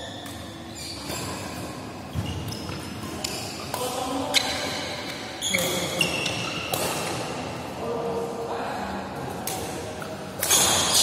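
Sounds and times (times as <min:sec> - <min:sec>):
shoes squeaking on court: 0:00.0 - 0:07.3
rackets hitting shuttlecock: 0:02.4 - 0:07.3.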